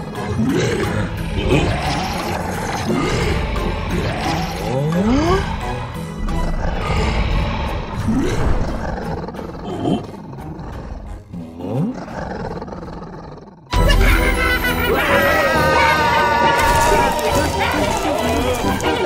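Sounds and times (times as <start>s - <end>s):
creatures roaring: 0.0s - 13.9s, 14.8s - 19.0s
cartoon music: 13.7s - 19.0s.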